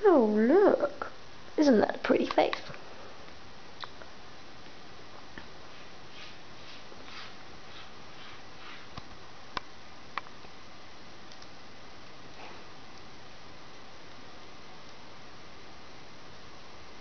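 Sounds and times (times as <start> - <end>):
steady hiss: 0.0 - 17.0
kitten scuffling on wooden floor: 5.7 - 9.0
sharp clicks: 11.3 - 11.6.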